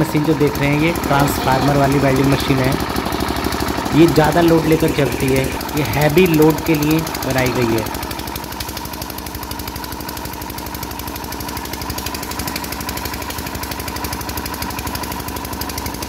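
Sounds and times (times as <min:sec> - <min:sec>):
person talking: 0:00.0 - 0:02.9, 0:03.9 - 0:08.0
diesel generator running: 0:00.0 - 0:16.0.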